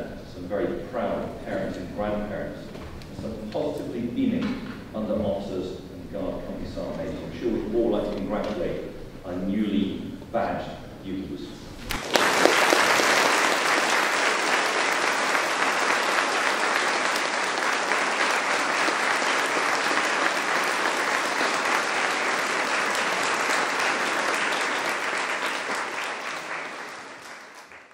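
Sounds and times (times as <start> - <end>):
large audience applauding: 11.9 - 27.9.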